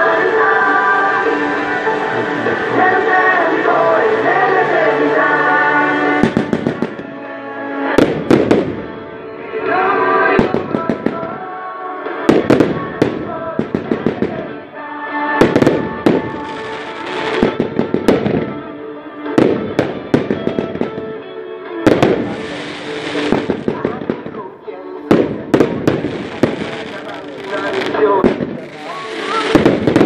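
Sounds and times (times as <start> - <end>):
music playing: 0.0 - 30.0
fireworks bangs and crackles: 6.1 - 7.2, 8.0 - 9.1, 10.3 - 11.5, 12.2 - 14.6, 15.4 - 18.7, 19.3 - 21.2, 21.8 - 24.5, 25.1 - 30.0.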